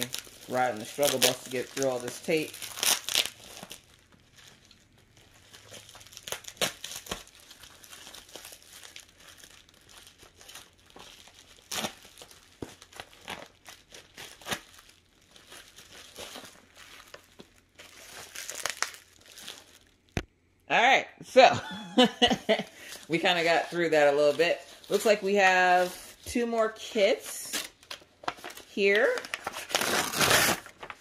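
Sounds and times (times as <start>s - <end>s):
packing tape tearing: 0.0s - 4.0s, 5.6s - 19.7s, 27.4s - 31.0s
bubble wrap crinkling: 0.0s - 20.5s, 22.5s - 31.0s.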